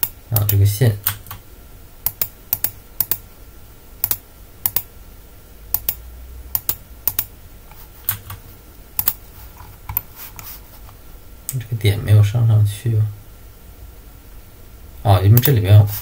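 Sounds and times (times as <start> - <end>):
computer mouse clicking: 2.0 - 3.2, 4.0 - 4.9, 5.7 - 6.0, 6.6 - 7.3, 8.1 - 8.4, 9.0 - 9.2, 9.9 - 10.1.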